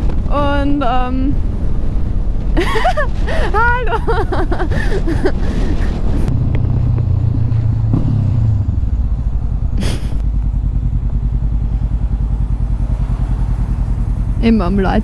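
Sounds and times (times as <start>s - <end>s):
motorcycle engine running: 5.2s - 15.0s.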